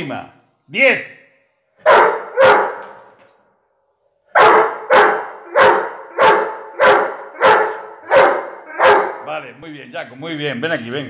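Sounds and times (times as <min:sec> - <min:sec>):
dog barking: 0:01.8 - 0:03.0, 0:04.3 - 0:09.3.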